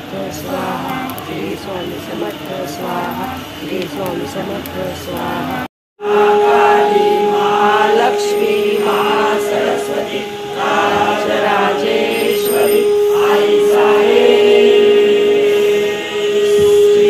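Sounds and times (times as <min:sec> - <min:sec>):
voices chanting in unison: 0:00.0 - 0:17.0
steady droning note: 0:05.4 - 0:17.0.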